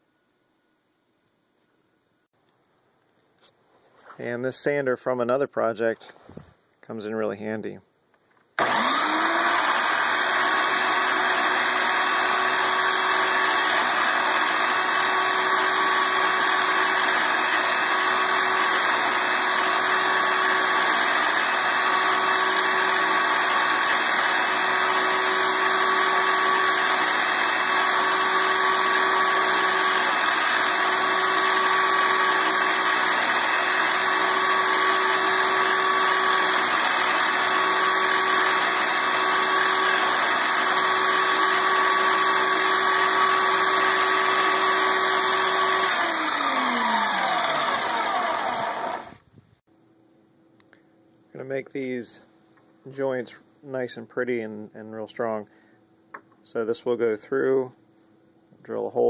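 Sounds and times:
wood block being sanded: 8.6s - 49.0s
belt sander whining: 8.6s - 49.3s.

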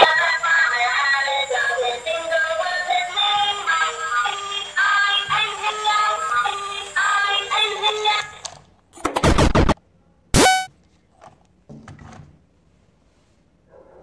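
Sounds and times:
synthesized singing voice: 0.0s - 8.4s
tinny electronic tune: 10.4s - 10.7s.

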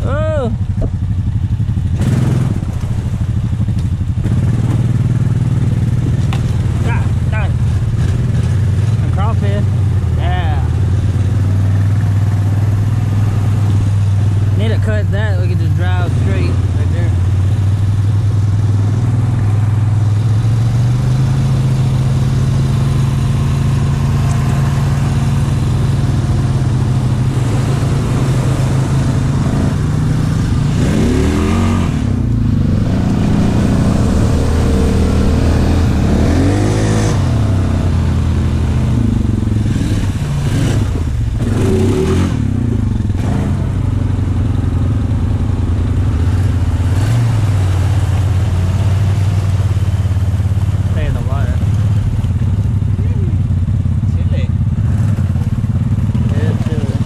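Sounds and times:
engine running and revving: 0.0s - 57.0s.

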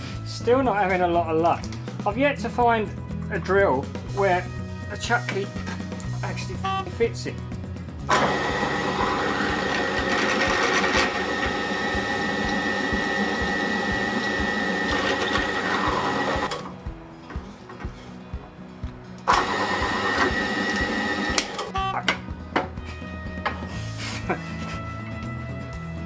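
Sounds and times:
drill press motor running: 8.1s - 16.6s, 19.3s - 21.7s.

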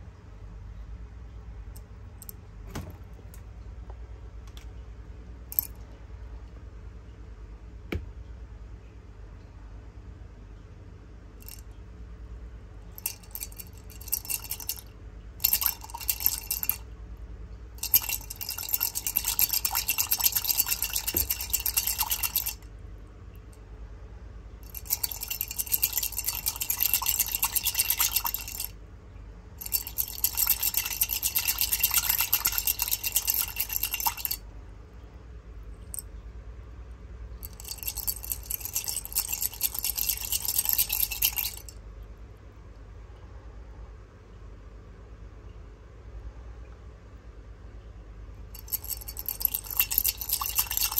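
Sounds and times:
hard candies rattling in container: 13.0s - 14.8s, 15.4s - 16.8s, 17.8s - 22.6s, 24.7s - 28.7s, 29.6s - 34.4s, 37.4s - 41.7s, 48.6s - 50.9s.

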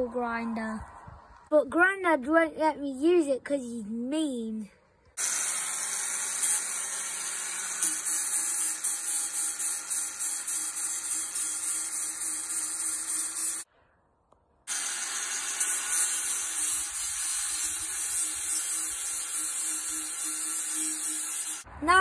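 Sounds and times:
angle grinder running: 5.2s - 13.6s, 14.7s - 21.7s.

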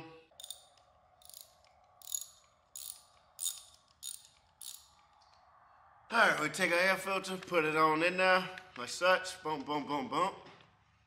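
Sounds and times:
small parts clicking and rattling: 0.3s - 5.4s.

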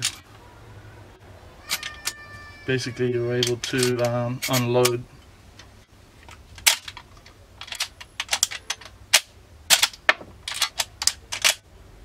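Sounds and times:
rifle lever clicking and clacking: 5.6s - 11.6s.

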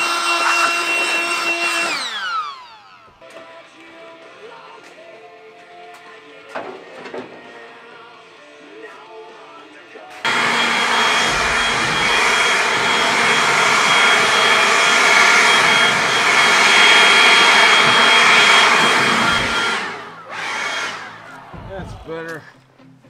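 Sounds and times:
leaf blower running: 0.0s - 3.3s, 10.2s - 22.0s.

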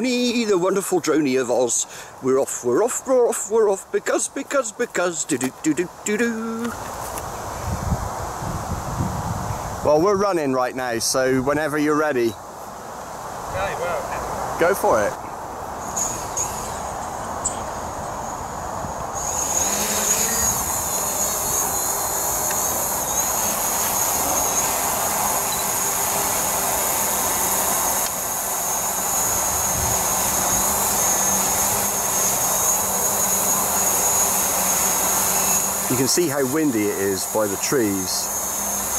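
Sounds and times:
drone propellers buzzing: 14.0s - 38.9s.

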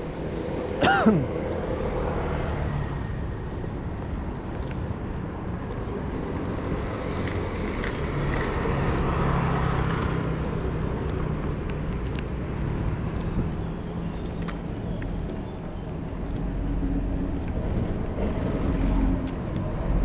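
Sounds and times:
street traffic noise: 0.0s - 20.0s
vehicle passing: 6.3s - 14.0s.

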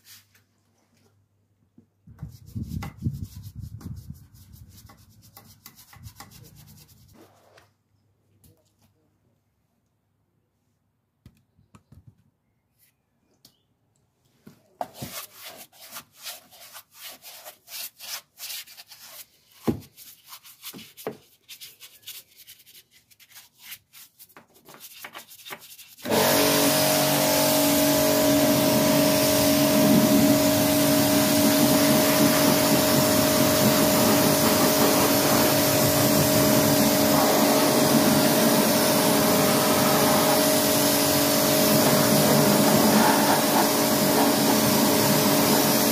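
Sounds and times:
pressure washer spraying: 26.0s - 45.9s
scrubbing wheel arch by hand: 31.1s - 45.8s.

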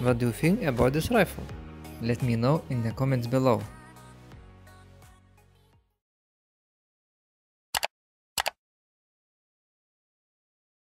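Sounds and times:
mouse click sound effects: 7.8s - 8.6s.

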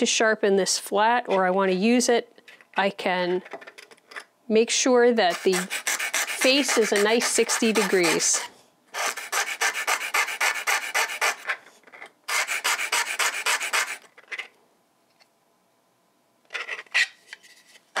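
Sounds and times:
graver rasping on sharpening disk: 5.3s - 11.5s, 12.3s - 14.0s.

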